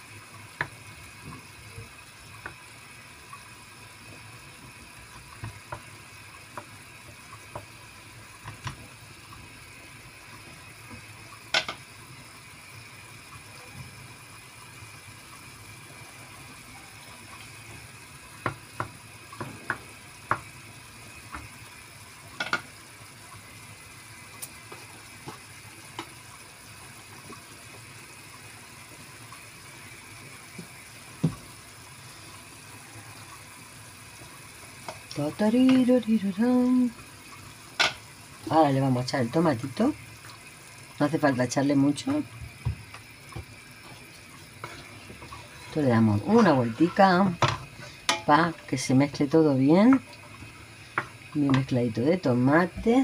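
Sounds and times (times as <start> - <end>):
prawns sizzling in a pan: 0.0 - 53.0
wooden spatula knocking on pan: 0.6 - 1.4, 5.4 - 5.9, 6.5 - 6.8, 8.4 - 8.8, 18.4 - 20.5, 22.4 - 22.6, 30.6 - 31.4, 42.4 - 43.6, 47.4 - 48.3.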